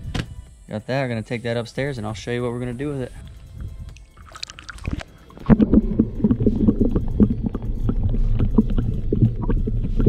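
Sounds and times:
underwater crackles and clicks: 3.6s - 10.0s
camera splashing into water: 4.2s - 5.8s
muffled underwater rumble: 4.7s - 10.0s.

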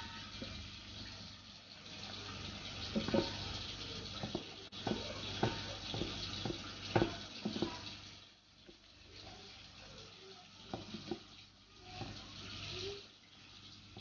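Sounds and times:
syrup boiling in a metal pot: 0.0s - 14.0s
wooden spoon knocking against pot: 2.9s - 3.4s, 4.2s - 7.8s.

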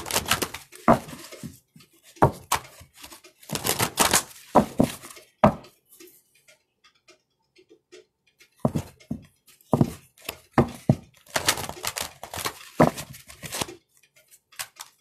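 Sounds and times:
cards rustling: 0.0s - 1.5s, 2.2s - 5.2s, 10.6s - 13.7s, 14.6s - 15.0s
cards slapping: 0.0s - 1.5s, 2.2s - 5.0s.

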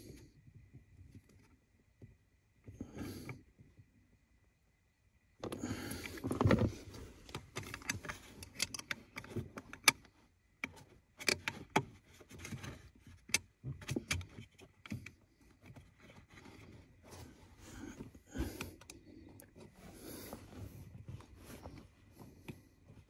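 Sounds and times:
rustling and scraping: 6.0s - 23.0s.

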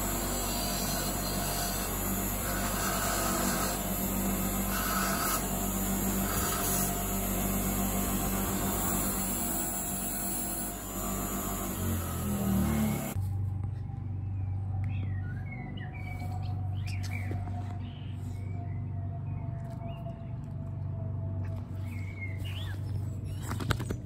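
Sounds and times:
bench grinder motor running: 0.0s - 13.2s.

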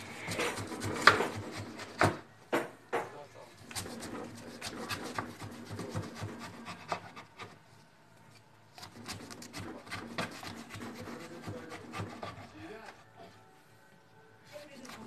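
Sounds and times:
knife cutting watermelon rind: 0.0s - 2.2s, 3.6s - 7.3s, 8.7s - 12.9s, 14.5s - 15.0s.

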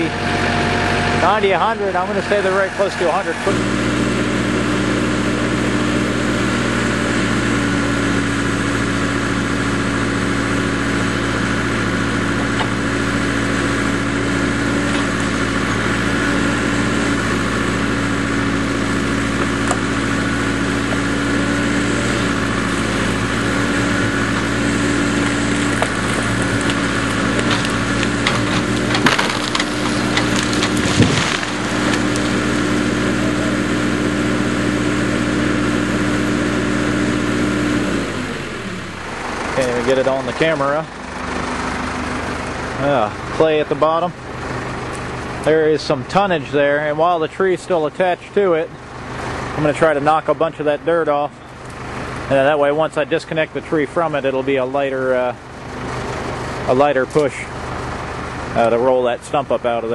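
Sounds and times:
backhoe engine running: 0.0s - 59.9s
tree crashing down: 0.2s - 43.5s
wood cracking and splintering: 5.0s - 43.5s.

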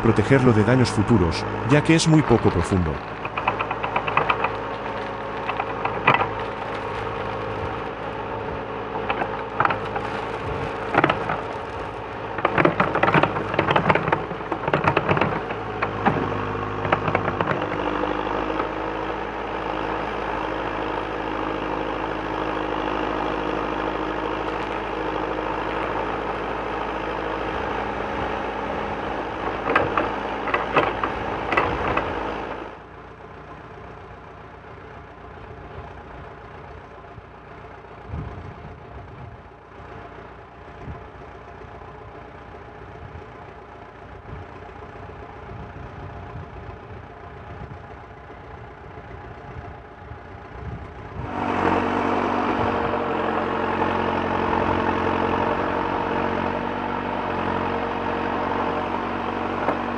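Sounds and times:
diesel engine running: 0.0s - 59.9s
bucket clanking and rattling: 2.6s - 7.9s, 9.0s - 17.8s.

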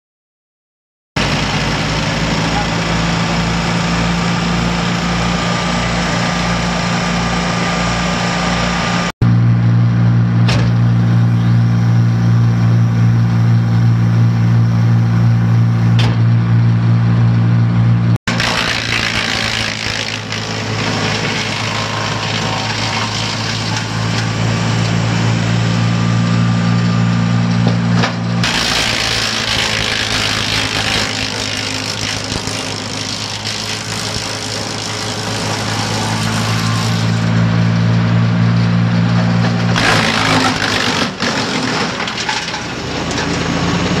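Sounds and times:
wood chipper engine hum: 1.2s - 44.0s
wood crackling and splintering: 18.3s - 24.4s, 28.4s - 37.4s, 39.7s - 43.4s.

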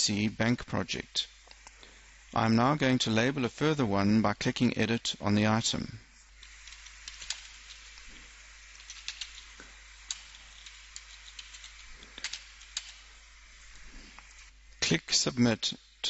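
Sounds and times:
faint steady hiss: 0.0s - 16.0s.

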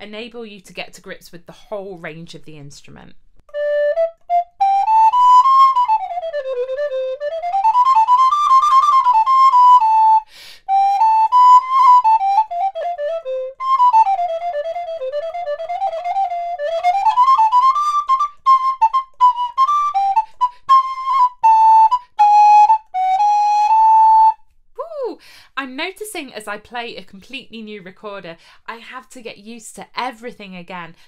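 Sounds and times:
recorder playing fast melody: 3.5s - 24.4s
player taking a breath: 10.2s - 10.7s, 25.2s - 25.6s, 28.4s - 28.7s.

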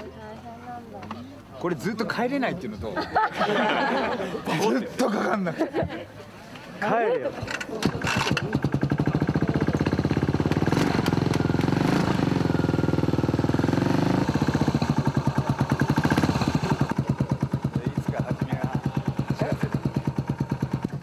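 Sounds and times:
motorcycle engine running: 7.5s - 21.0s.

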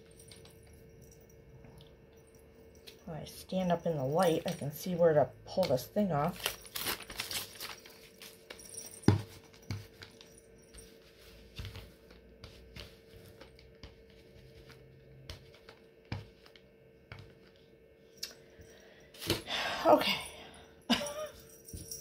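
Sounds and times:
faint steady hum: 0.0s - 22.0s
lint roller crackling and rustling: 5.8s - 10.3s.

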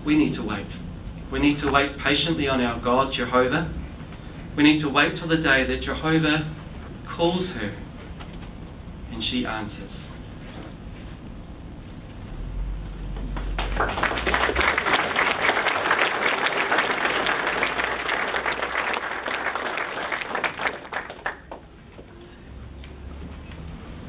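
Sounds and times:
audience applauding: 13.2s - 22.0s.

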